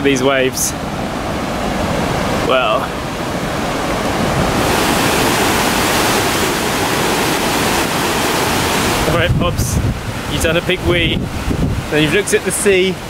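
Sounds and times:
heavy surf breaking on shore: 0.0s - 13.0s.

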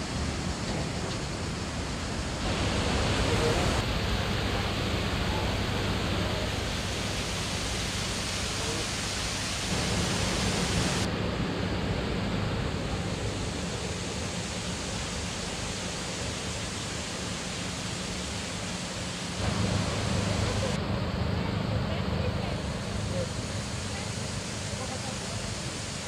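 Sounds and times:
waterfall and stream rushing: 0.0s - 11.1s.

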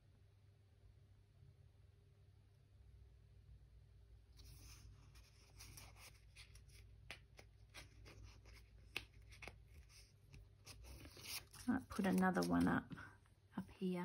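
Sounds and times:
paper rustling and ticking: 4.4s - 12.9s.

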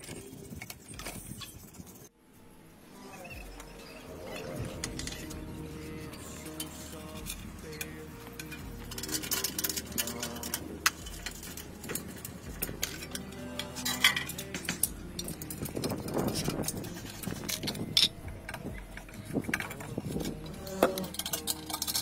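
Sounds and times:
music: 2.2s - 22.0s
hand tools clinking on metal: 4.2s - 22.0s.

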